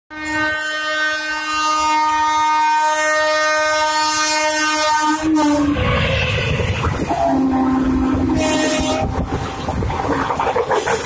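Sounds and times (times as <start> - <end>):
train horn long blast: 0.1 - 6.4, 7.0 - 9.3.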